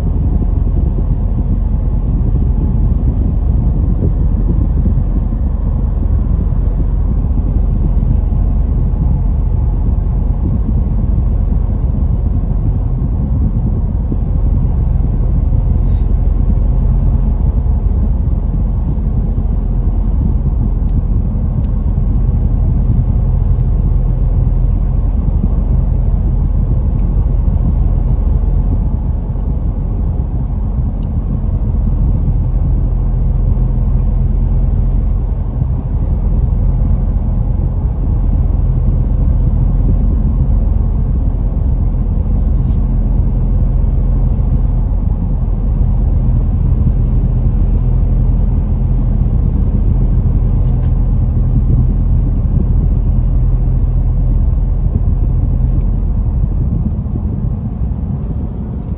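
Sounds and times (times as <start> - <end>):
car engine and tyre rumble: 0.0 - 58.9.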